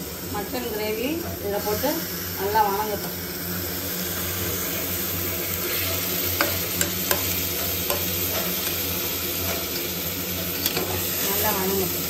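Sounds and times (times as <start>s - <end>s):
meat sizzling in hot oil: 0.0s - 12.0s
metal spatula stirring: 5.6s - 8.8s, 9.4s - 11.5s.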